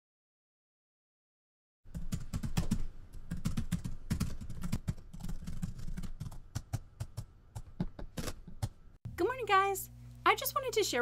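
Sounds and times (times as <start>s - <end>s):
rapid keyboard typing: 1.9s - 8.8s.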